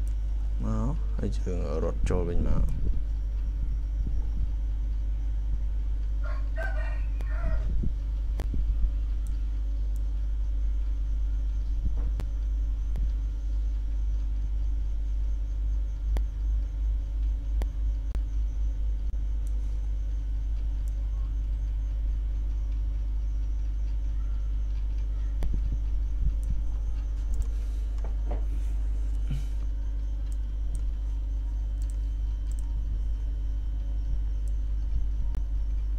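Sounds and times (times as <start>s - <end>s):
low background rumble: 0.0s - 35.9s
computer mouse clicks: 26.4s - 28.1s, 31.8s - 32.8s.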